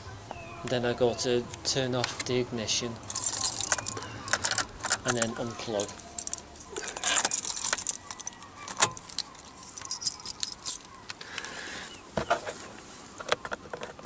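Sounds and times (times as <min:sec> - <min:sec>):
light clicks and rattles: 0:02.0 - 0:11.5
car keys jangling: 0:03.0 - 0:11.1.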